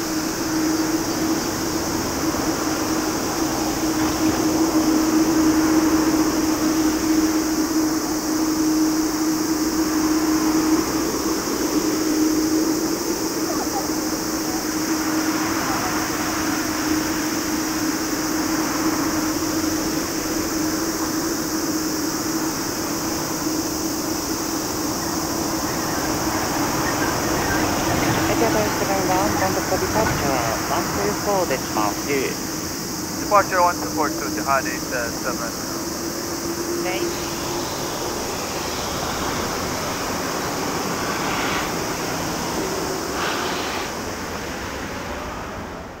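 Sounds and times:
jet engines roaring: 0.0 - 46.0.

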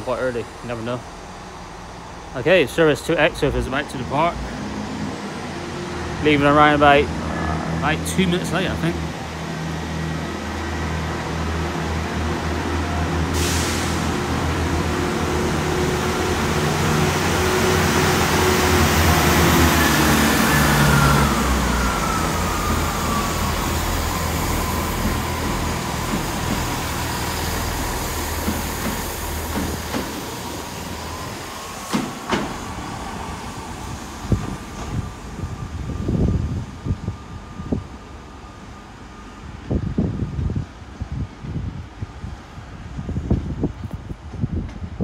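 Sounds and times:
diesel train engine pulling away: 0.0 - 45.0
falling whine: 15.5 - 40.6.

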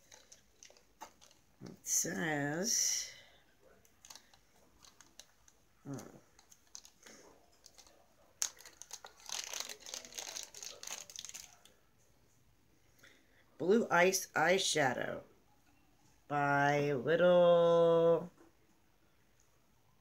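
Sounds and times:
packaging crinkling and rustling: 0.0 - 1.7, 3.8 - 11.7.

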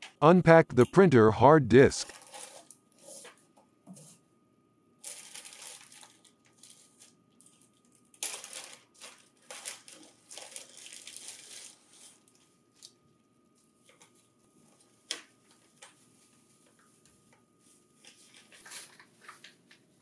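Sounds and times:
plastic bag crinkling: 2.0 - 2.8, 5.0 - 12.4.

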